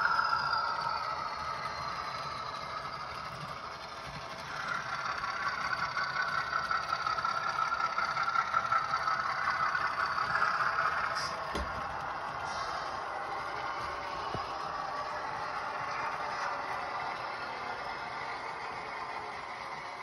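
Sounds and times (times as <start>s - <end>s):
model diesel engine sound from speaker: 0.0s - 20.0s.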